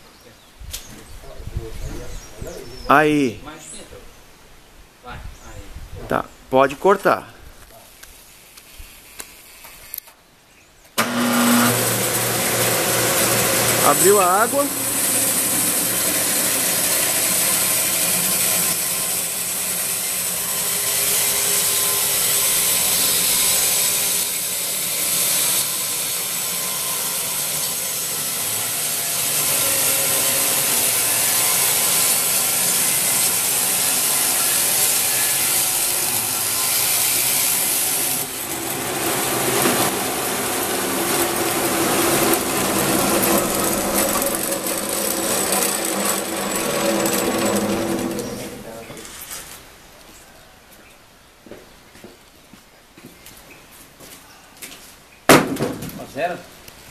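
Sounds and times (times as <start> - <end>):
band sawmill cutting a log: 11.0 - 49.2.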